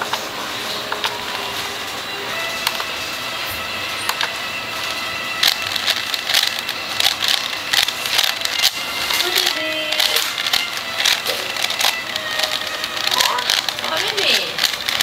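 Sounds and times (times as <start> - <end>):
puzzle cube clicking turns: 4.0 - 15.0.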